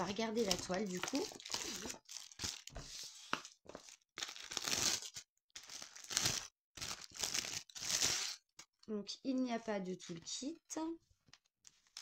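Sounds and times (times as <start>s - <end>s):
plastic packaging crinkling: 0.0s - 2.8s, 3.4s - 8.6s.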